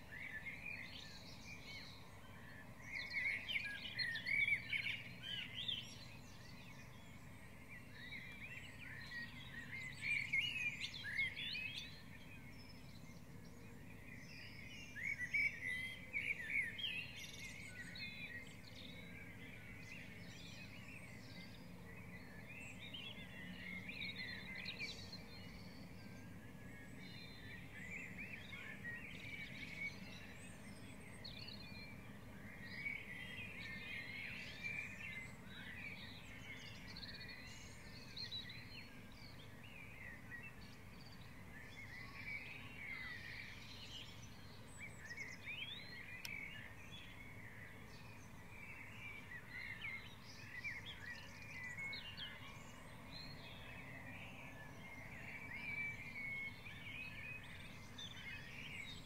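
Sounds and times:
songbirds chirping: 0.0 - 59.0.

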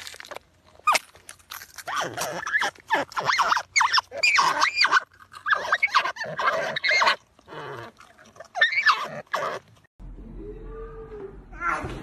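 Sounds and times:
marmots squealing: 1.8 - 7.9, 8.5 - 9.6.

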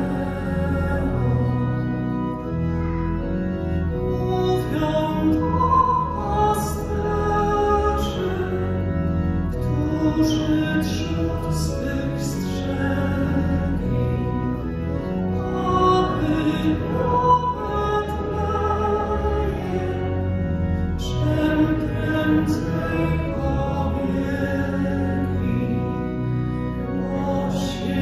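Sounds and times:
church organ chords: 0.0 - 28.0
congregation singing: 0.0 - 28.0.

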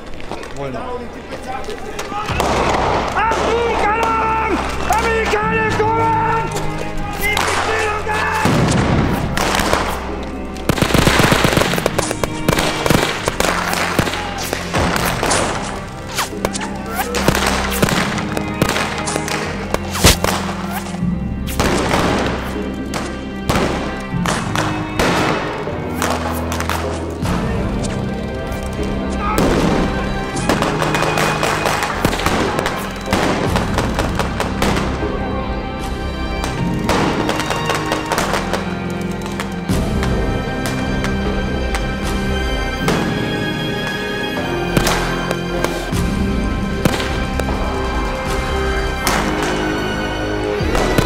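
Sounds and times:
background music: 0.0 - 51.0
rapid gunfire: 10.7 - 15.6.

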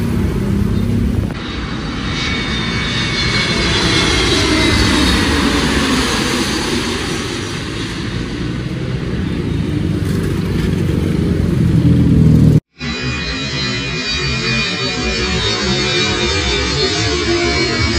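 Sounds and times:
road traffic rumble: 0.0 - 12.7
jet engines passing overhead: 0.0 - 17.9.

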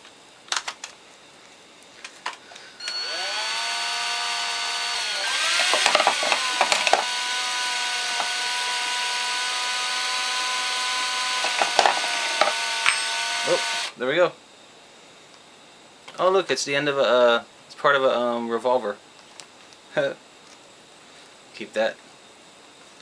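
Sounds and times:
electric drill whine: 2.6 - 14.0.

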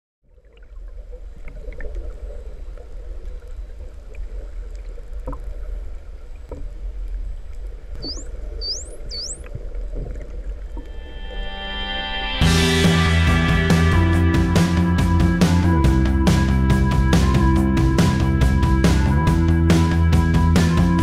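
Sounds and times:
low water rumble: 0.2 - 21.0
dolphin clicks: 7.9 - 9.6
dolphins whistling underwater: 8.0 - 9.6.

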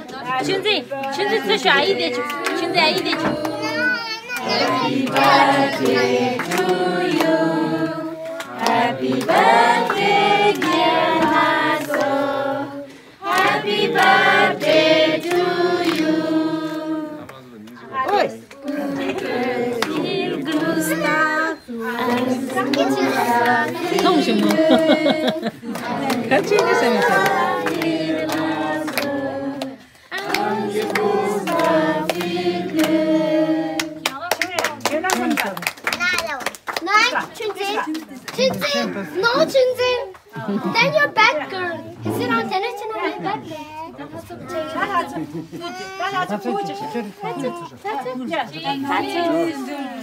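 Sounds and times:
group singing birthday song: 0.0 - 35.5, 37.7 - 45.7, 46.5 - 50.0
hands clapping along: 2.2 - 7.4, 8.2 - 12.2, 13.2 - 16.1, 17.2 - 21.3, 22.0 - 33.0, 33.8 - 38.7.

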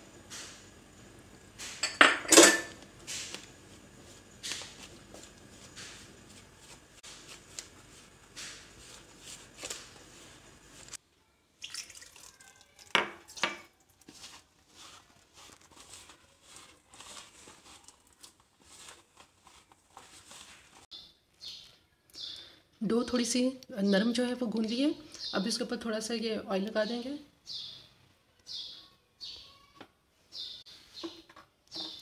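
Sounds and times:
dough squishing and scraping: 2.7 - 11.0, 12.7 - 21.7.

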